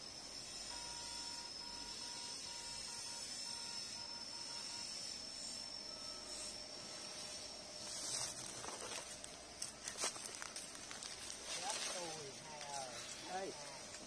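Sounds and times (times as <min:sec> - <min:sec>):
faint high-pitched whine: 0:00.0 - 0:14.0
footsteps in dry leaves: 0:07.1 - 0:14.0.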